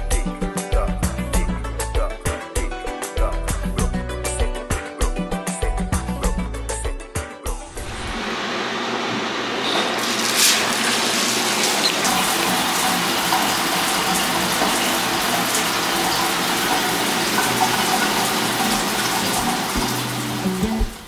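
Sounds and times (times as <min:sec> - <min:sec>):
shower spray hissing on tiles: 0:09.8 - 0:21.0.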